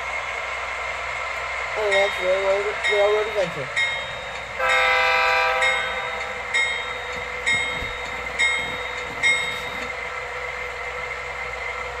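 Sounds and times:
locomotive bell dinging: 1.8s - 10.7s.

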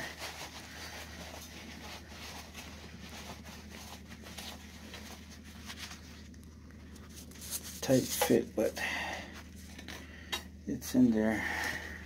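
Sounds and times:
low steady hum: 0.0s - 12.0s
faint clicks and rustles: 0.2s - 8.5s.

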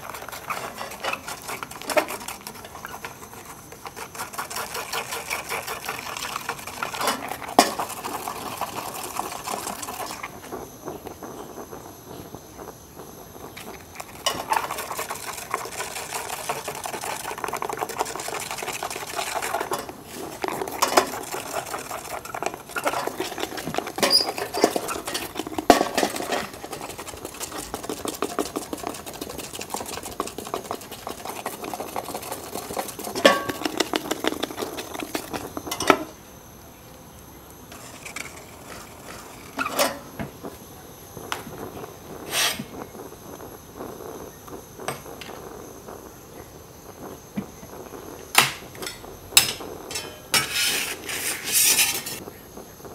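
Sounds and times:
stick stirring in metal ladle: 0.0s - 11.9s, 12.9s - 36.2s, 37.7s - 40.1s, 48.4s - 52.2s.

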